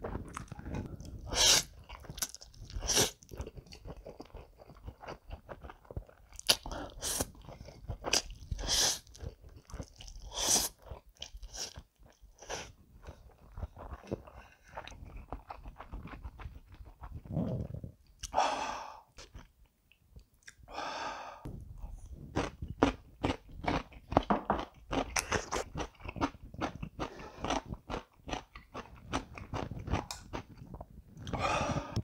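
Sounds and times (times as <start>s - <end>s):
wet chewing: 0.0s - 18.4s
person slurping noodles: 0.1s - 3.3s, 6.5s - 7.4s, 8.1s - 9.1s, 10.2s - 10.8s, 17.2s - 18.9s, 31.2s - 32.0s.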